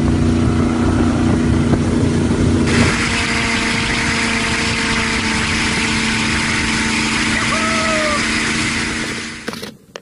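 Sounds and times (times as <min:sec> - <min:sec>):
motorboat engine running: 0:00.0 - 0:09.6
water rushing: 0:01.8 - 0:09.4.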